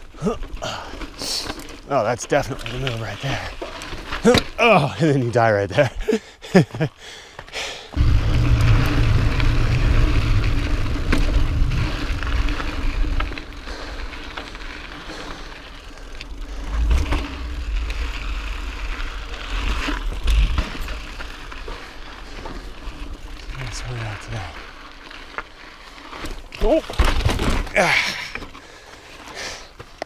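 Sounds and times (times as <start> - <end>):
bike tyres rolling over rock: 0.0 - 5.9, 7.9 - 30.0
bike rattling: 0.0 - 30.0
deep rumble: 8.0 - 22.3.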